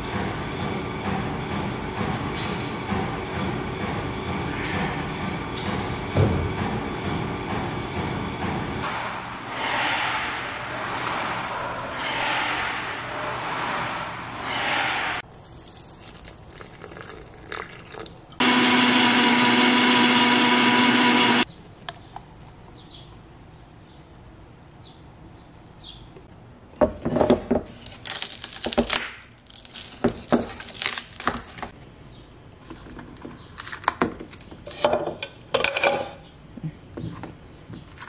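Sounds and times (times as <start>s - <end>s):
blender running: 18.4s - 21.4s.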